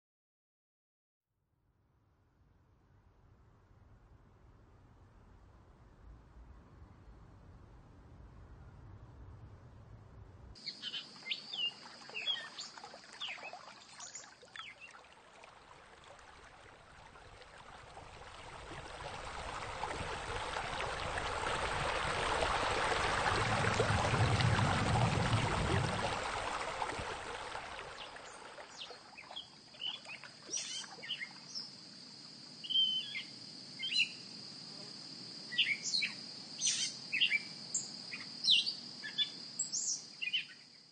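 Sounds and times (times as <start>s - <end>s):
birds chirping: 10.6s - 14.8s
running water rushing: 10.6s - 31.4s.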